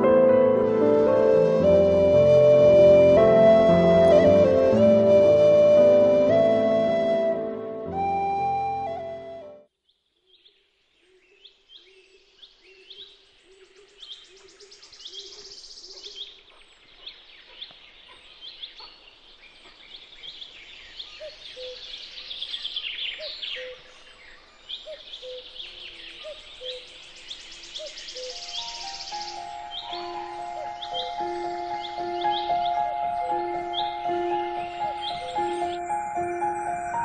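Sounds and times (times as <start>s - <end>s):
birds chirping and calling: 10.2s - 37.0s.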